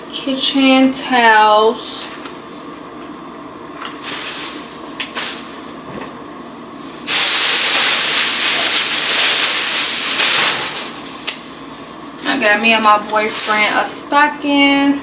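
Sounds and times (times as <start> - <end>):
plastic bag rustling: 4.0 - 5.6, 7.0 - 11.6, 12.9 - 13.9.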